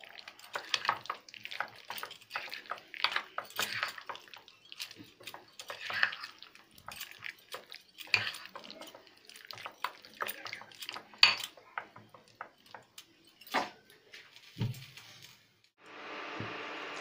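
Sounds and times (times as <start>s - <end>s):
spoon scraping a bowl: 0.3s - 13.5s.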